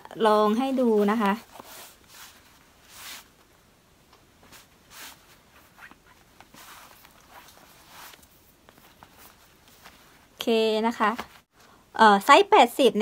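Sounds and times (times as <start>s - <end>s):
leather belt rustling through loops: 4.5s - 11.4s.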